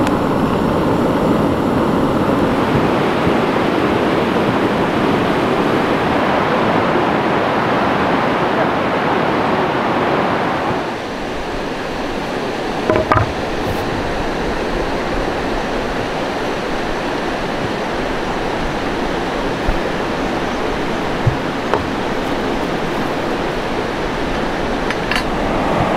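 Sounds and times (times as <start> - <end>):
running water rushing: 0.0 - 25.9
short knocks: 12.9 - 13.4.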